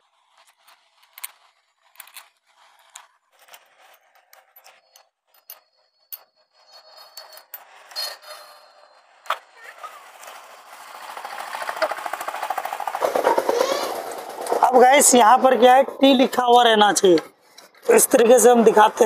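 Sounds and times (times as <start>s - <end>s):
metal tool clicks and scrapes: 2.9s - 8.6s.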